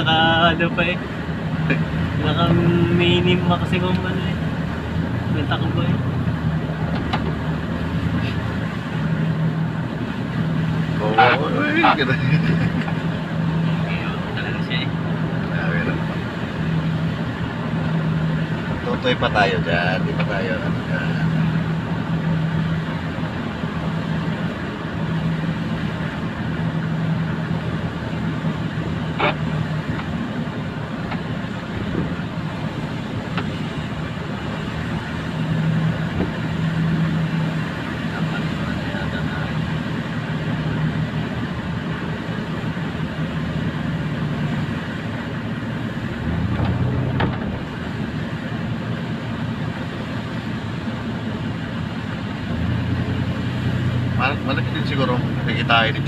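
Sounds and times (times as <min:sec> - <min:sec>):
car engine hum: 0:00.0 - 0:56.0
tyre and road noise: 0:00.0 - 0:56.0.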